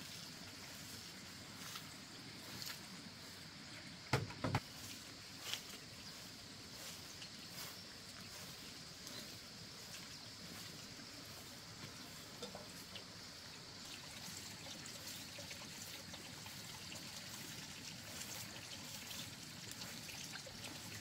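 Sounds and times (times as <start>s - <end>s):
faint background hiss: 0.0s - 21.0s.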